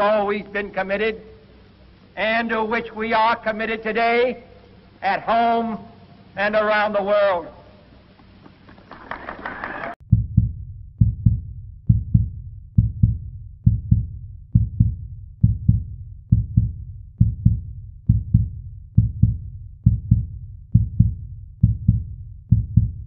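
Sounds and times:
heartbeat thumps: 10.0s - 23.0s.

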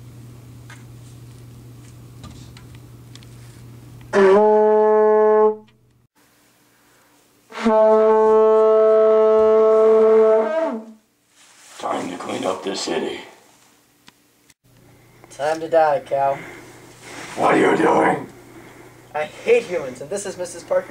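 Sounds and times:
faint room hum: 0.0s - 4.3s, 5.6s - 20.9s
low horn blasts: 4.1s - 5.8s, 7.5s - 11.0s.

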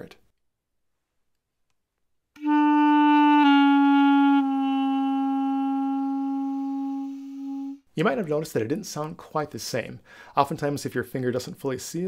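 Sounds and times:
clarinet playing notes: 2.4s - 7.9s.

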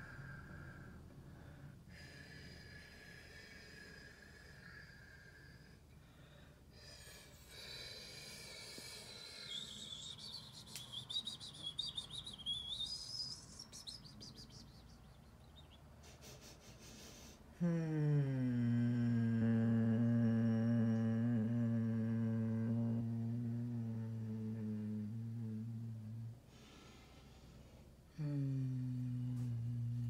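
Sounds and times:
bird singing: 9.3s - 15.9s.

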